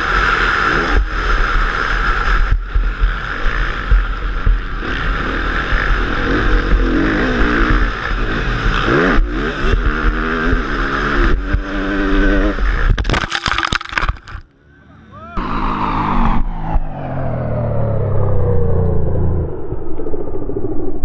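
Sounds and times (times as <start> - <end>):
motocross bike engine revving: 0.0 - 13.0
knocks and clattering of crash: 12.9 - 14.4.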